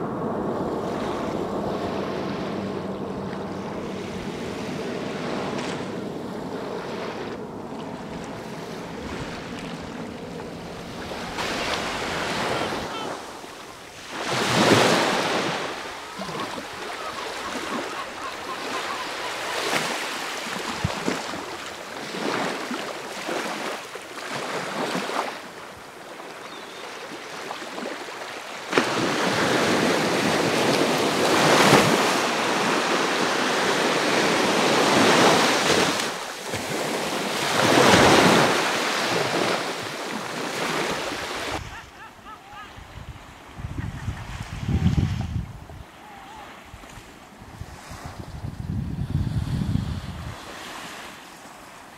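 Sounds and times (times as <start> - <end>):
wind on microphone: 0.0 - 22.7, 42.6 - 50.8
sea waves washing on shore: 0.0 - 51.9.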